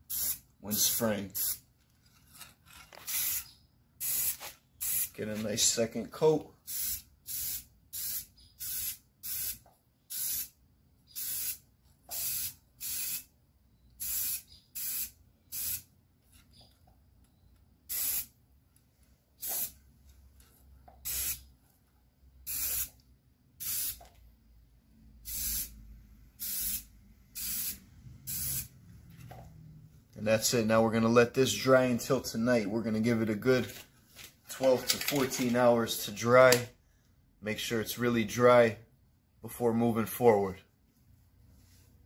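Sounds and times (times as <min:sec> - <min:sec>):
spray paint can hissing: 0:00.0 - 0:01.6, 0:03.1 - 0:05.2, 0:06.6 - 0:13.3, 0:14.0 - 0:15.9, 0:17.9 - 0:18.3, 0:19.4 - 0:19.8, 0:21.0 - 0:21.5, 0:22.5 - 0:23.0, 0:23.6 - 0:24.1, 0:25.2 - 0:25.8, 0:26.4 - 0:28.7.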